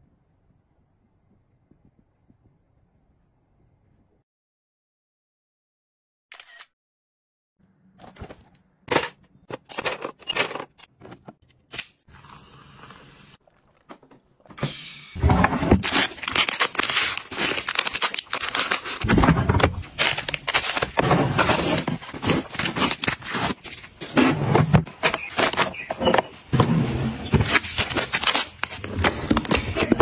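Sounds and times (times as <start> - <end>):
plastic packets crinkling: 15.8 - 23.9, 27.4 - 30.0.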